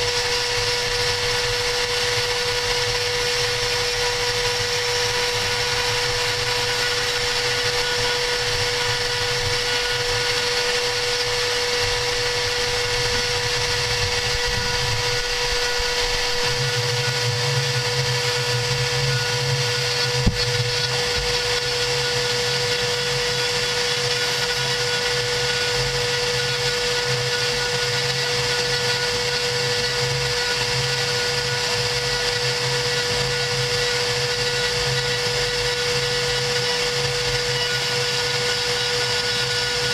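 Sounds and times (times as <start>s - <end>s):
router spindle whine: 0.0s - 39.9s.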